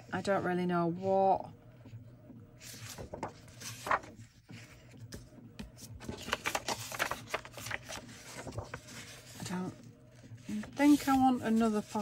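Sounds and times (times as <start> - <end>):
paper rustling: 2.6 - 12.0.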